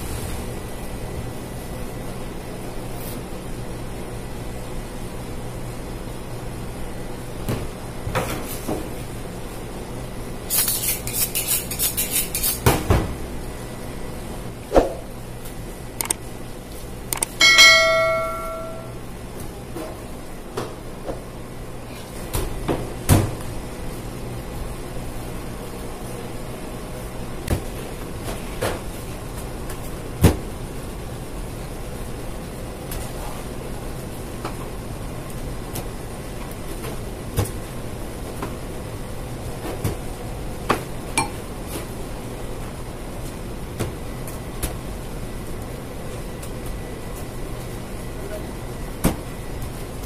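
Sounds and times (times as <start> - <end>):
steady background hum: 0.0 - 50.0
notification bell ding: 17.4 - 19.0.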